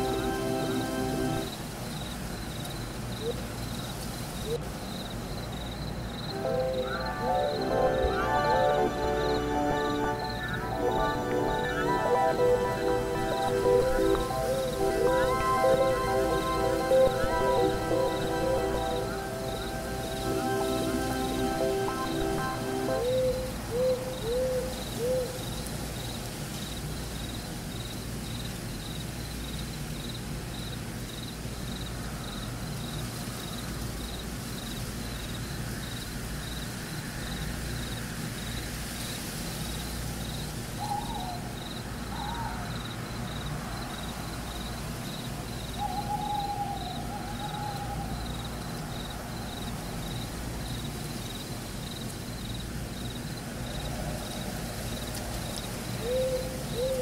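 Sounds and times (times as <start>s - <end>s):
faint high pulse: 0.0s - 1.5s, 6.3s - 23.6s
owl-like hoots: 23.1s - 25.4s, 40.8s - 42.9s, 45.7s - 48.5s, 56.0s - 57.0s.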